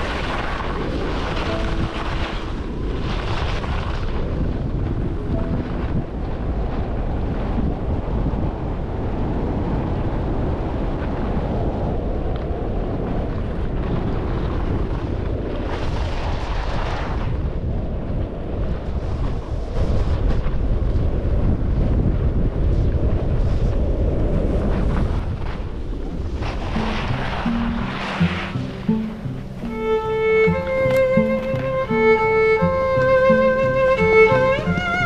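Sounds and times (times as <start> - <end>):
wind rushing over microphone: 0.0 - 35.0
skis hissing over packed snow: 26.2 - 28.9.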